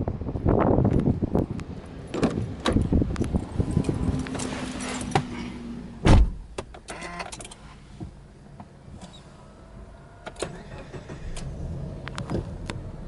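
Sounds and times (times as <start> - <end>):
car door shutting: 2.1 - 2.9, 4.3 - 8.2
car door opening: 2.1 - 9.3.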